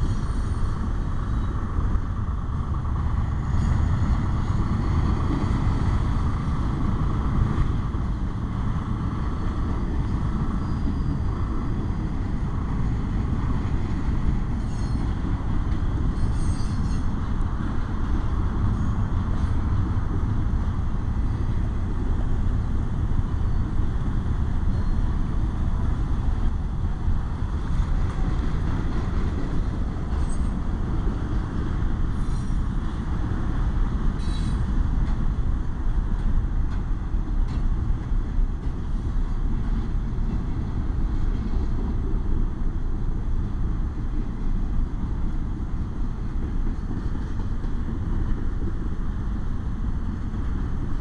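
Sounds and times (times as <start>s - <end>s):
train wheels rumbling on rail: 0.0s - 51.0s
faint squeaks and clanks: 10.6s - 11.2s, 14.6s - 15.2s, 16.1s - 17.2s, 30.1s - 30.6s, 32.1s - 32.6s, 34.2s - 34.7s.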